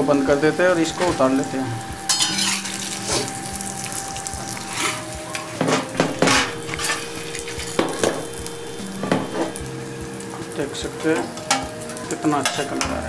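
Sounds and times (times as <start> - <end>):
vegetables sizzling in oil: 0.0 - 13.0
metal spatula scraping pan: 2.0 - 3.4, 4.5 - 9.6.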